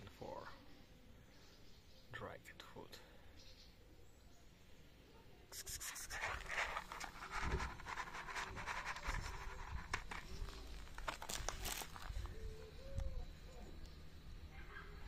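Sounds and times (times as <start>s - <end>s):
clicks of grit and kibble: 5.8s - 12.2s
paper plate scraping over gravel: 5.9s - 12.2s.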